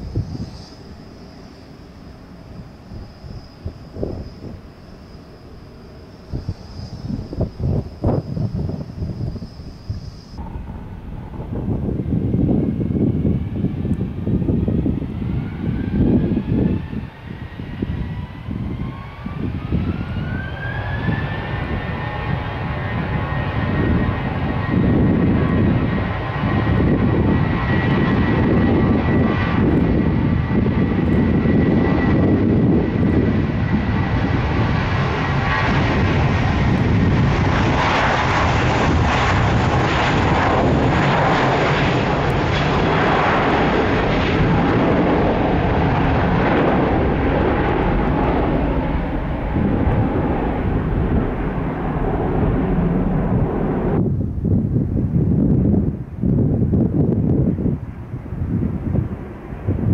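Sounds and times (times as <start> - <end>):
faint high whine: 0.0 - 14.2
jet engines running: 0.0 - 59.9.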